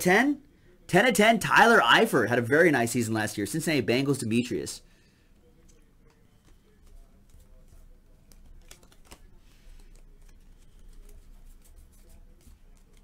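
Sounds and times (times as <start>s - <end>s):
trading cards flipping: 5.6s - 13.0s.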